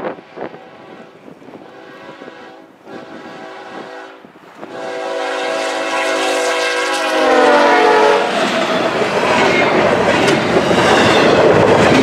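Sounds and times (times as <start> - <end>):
locomotive air horn: 0.0 - 8.5.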